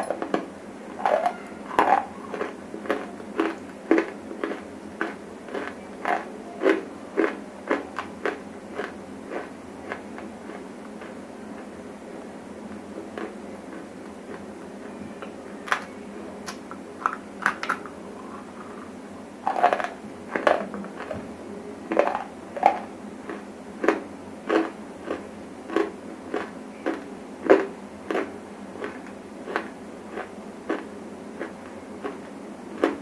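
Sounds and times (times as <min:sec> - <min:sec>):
clay being chewed crunching: 0:01.0 - 0:11.7, 0:12.7 - 0:14.5, 0:19.5 - 0:21.2, 0:21.9 - 0:33.0.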